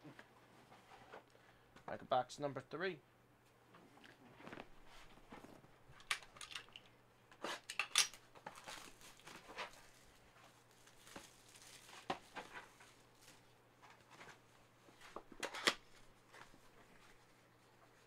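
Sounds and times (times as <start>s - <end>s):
packaging rustling: 8.1s - 14.5s.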